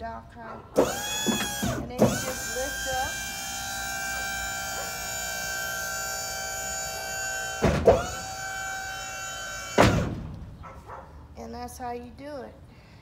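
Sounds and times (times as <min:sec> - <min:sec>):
hydraulic pump motor whining: 0:00.8 - 0:10.7
loud metal clunk: 0:07.6 - 0:08.3, 0:09.7 - 0:10.6.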